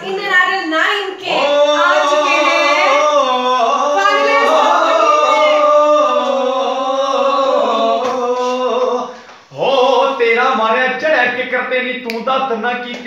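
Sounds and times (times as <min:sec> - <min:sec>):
person singing wordless notes: 0:01.2 - 0:10.2.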